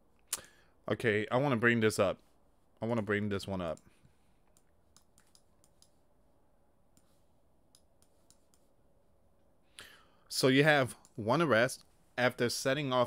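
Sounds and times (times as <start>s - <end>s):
computer mouse clicks: 4.5s - 6.0s, 6.9s - 8.7s.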